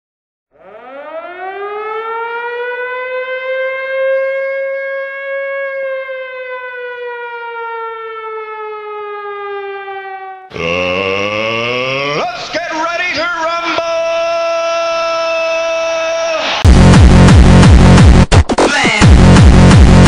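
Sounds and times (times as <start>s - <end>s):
siren-like wail: 0.5s - 12.2s.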